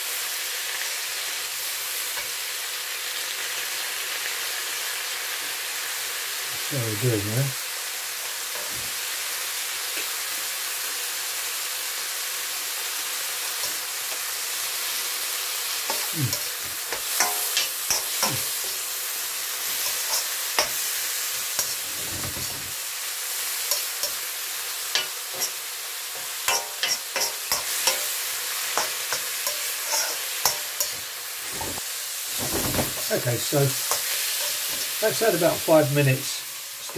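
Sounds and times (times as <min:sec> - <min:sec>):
vegetables sizzling in a wok: 0:00.0 - 0:36.9
spatula scraping and clicking on pan: 0:15.9 - 0:18.8, 0:19.6 - 0:22.6, 0:23.7 - 0:24.2, 0:24.9 - 0:25.6, 0:26.2 - 0:31.8.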